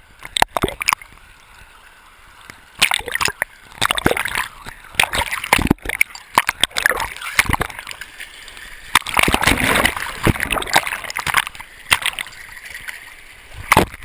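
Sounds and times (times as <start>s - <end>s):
bubbly gurgling: 0.4s - 1.0s, 2.8s - 8.0s, 8.9s - 13.0s
river rapids splashing: 2.8s - 14.0s.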